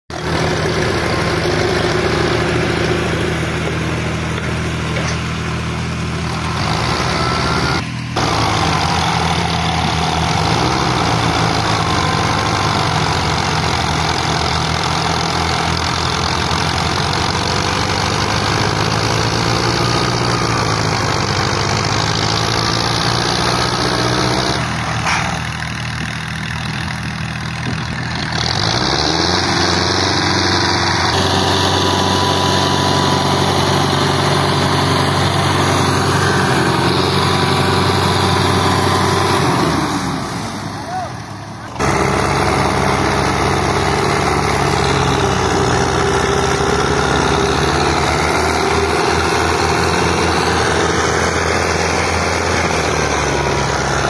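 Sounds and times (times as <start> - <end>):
tractor diesel engine labouring: 0.1 - 54.0.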